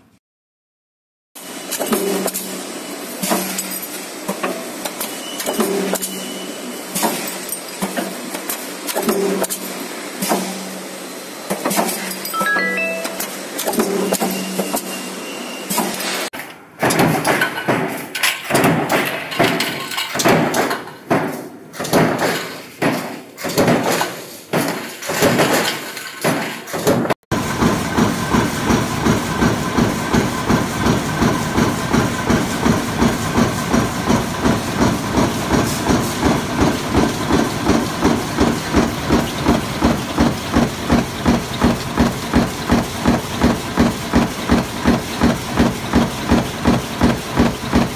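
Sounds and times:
heavy clanks and thuds: 16.8 - 47.9
stamping press striking: 16.8 - 47.9.

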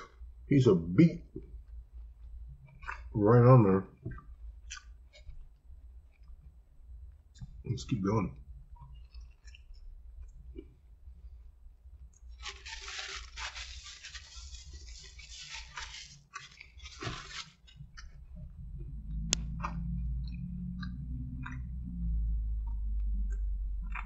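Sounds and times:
wet chewing crunches: 4.1 - 5.3
paper napkin rustling: 12.3 - 17.8.

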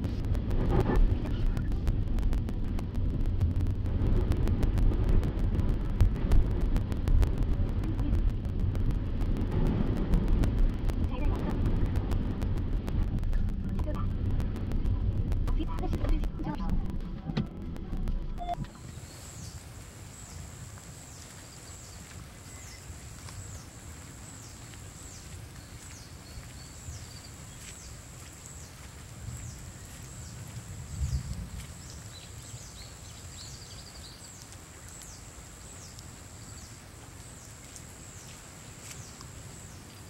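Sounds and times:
steady high-pitched hum: 0.0 - 23.6
low wind-like rumble: 0.0 - 40.0.

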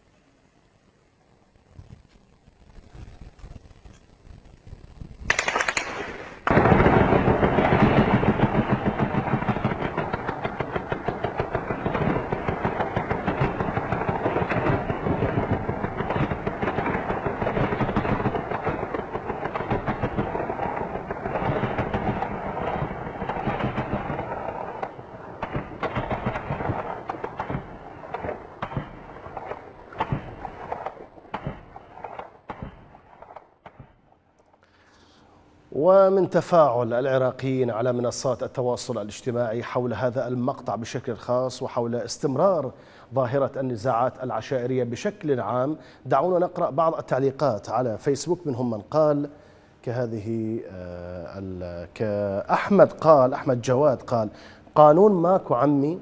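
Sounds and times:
automatic gunfire: 5.3 - 34.0.

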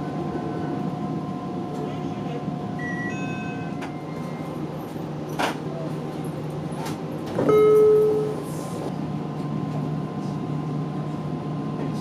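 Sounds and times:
train running hum: 0.0 - 12.0
loud held tone: 7.5 - 8.4.

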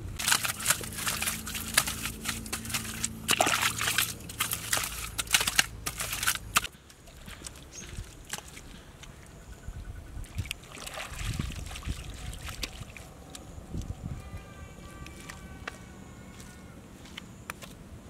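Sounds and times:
wet mud scooped by hand: 0.2 - 8.7.

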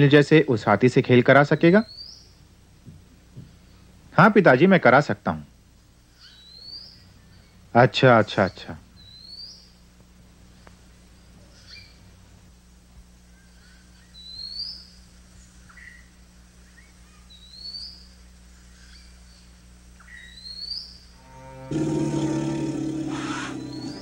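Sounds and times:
faint steady hum: 0.0 - 24.0
bird chirps: 6.2 - 7.6, 9.0 - 9.8, 13.3 - 15.0, 15.6 - 21.1, 22.3 - 24.0
bird rising whistle: 22.1 - 24.0.

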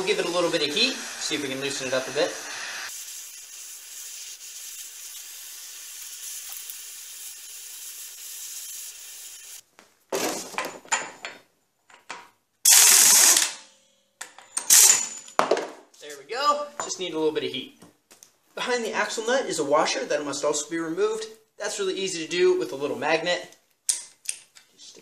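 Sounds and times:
gas torch hissing: 0.0 - 9.6
air impact wrench burst: 12.7 - 13.6, 14.6 - 15.1.

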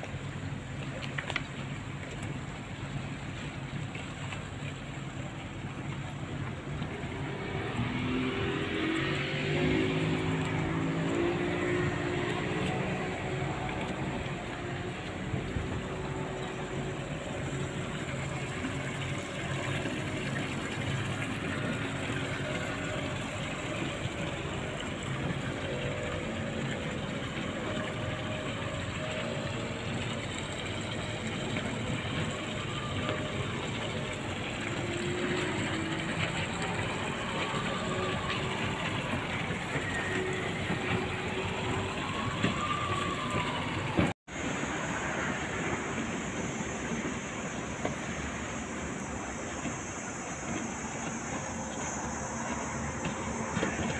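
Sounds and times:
continuous rush of city noise: 0.0 - 53.9
distant traffic: 0.0 - 53.9.

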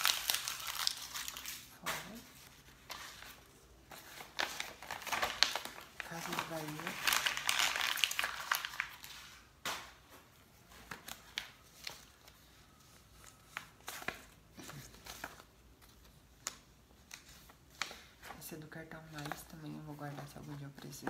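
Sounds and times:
paper crumpling: 0.0 - 9.3
paper rustling and tapping: 13.6 - 18.4, 19.1 - 21.0.

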